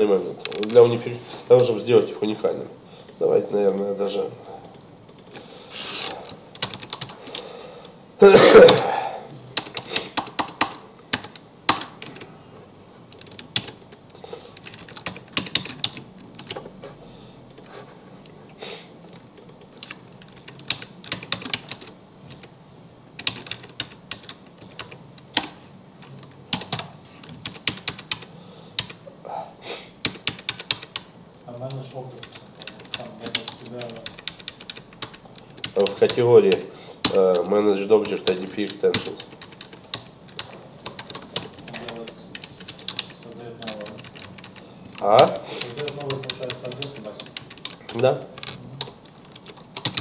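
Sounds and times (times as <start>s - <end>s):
typing on computer keyboard: 4.6s - 5.4s, 6.2s - 7.2s, 9.6s - 12.3s, 13.1s - 16.7s, 17.5s - 17.8s, 19.1s - 22.5s, 23.2s - 29.0s, 30.0s - 50.0s.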